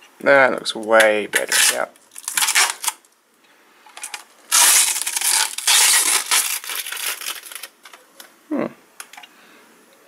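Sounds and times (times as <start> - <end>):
plastic wrapping crinkling: 0.8 - 3.2, 3.8 - 8.3.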